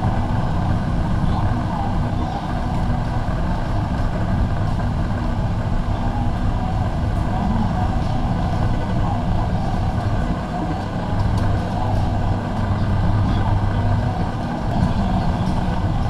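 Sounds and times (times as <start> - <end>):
faint hum: 0.0 - 16.0
murmur of shoppers' voices: 0.0 - 16.0.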